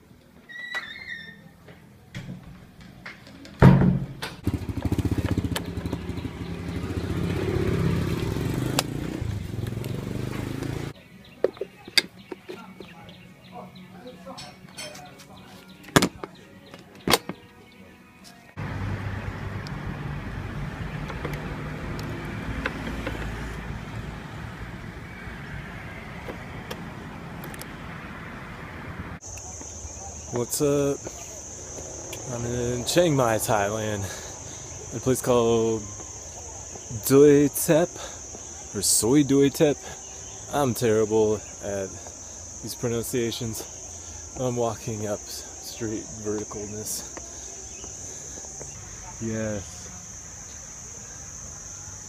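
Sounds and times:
motorcycle engine putter: 0:02.2 - 0:12.6, 0:21.0 - 0:23.6
loud thump: 0:03.6 - 0:04.4
scooter engine idling: 0:04.3 - 0:11.0, 0:18.6 - 0:27.5, 0:29.2 - 0:52.0.

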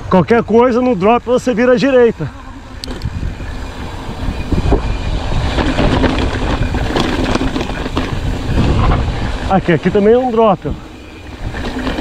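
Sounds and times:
deep rumble of bike tyres: 0:00.0 - 0:12.0
bike clicking and rattling: 0:00.2 - 0:12.0
wind buffeting microphone: 0:01.1 - 0:12.0.

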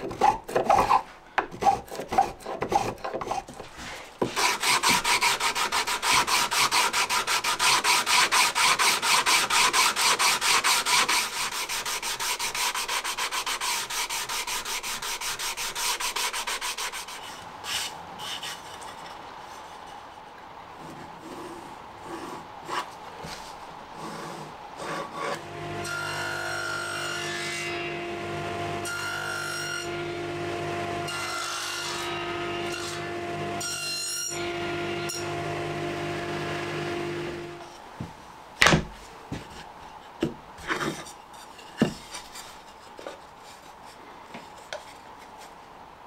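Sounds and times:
table saw cutting wood: 0:04.2 - 0:14.6, 0:24.0 - 0:37.7
wooden boards knocking: 0:38.0 - 0:39.5.

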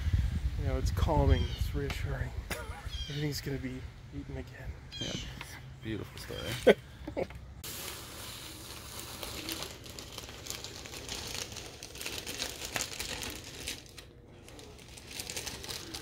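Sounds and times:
crinkling handling noise: 0:06.4 - 0:16.0.

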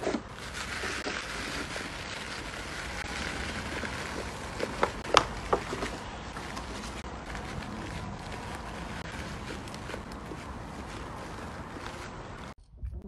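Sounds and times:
dog gnawing chew stick: 0:04.2 - 0:12.6.

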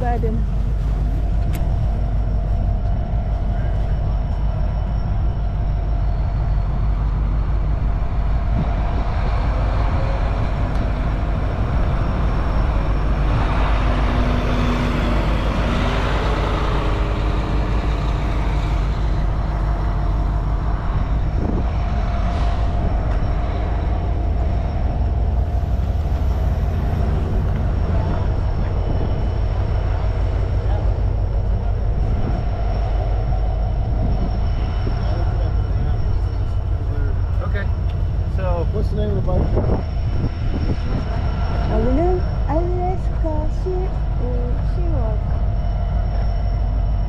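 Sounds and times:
street traffic rumble: 0:00.0 - 0:47.0
bus driving past: 0:06.0 - 0:38.7.

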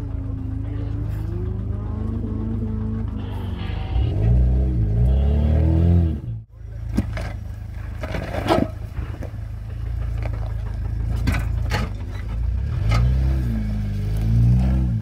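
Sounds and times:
off-road vehicle engine running: 0:00.0 - 0:15.0
sharp knocks and scrapes: 0:06.9 - 0:09.4.

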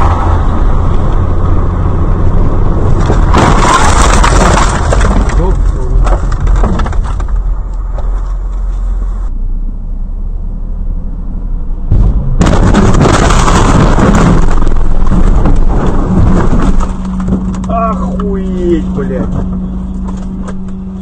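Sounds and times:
road rumble: 0:00.0 - 0:21.0
loud crash noise: 0:03.0 - 0:05.6, 0:11.9 - 0:17.5.

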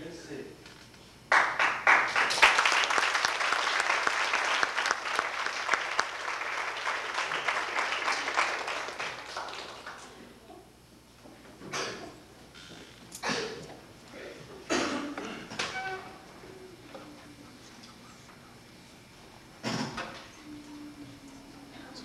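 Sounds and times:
audience applauding: 0:01.3 - 0:10.3.

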